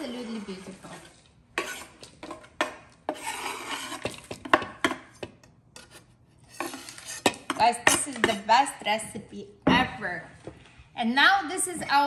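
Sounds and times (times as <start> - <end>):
knife scraping wooden board: 1.6 - 2.4, 3.1 - 4.4, 5.8 - 7.4.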